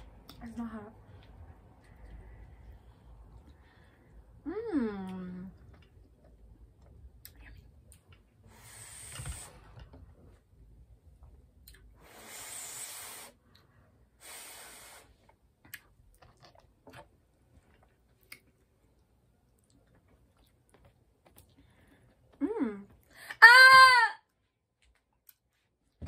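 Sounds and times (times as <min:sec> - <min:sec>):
person blowing on food: 0:12.0 - 0:13.4, 0:14.2 - 0:15.2.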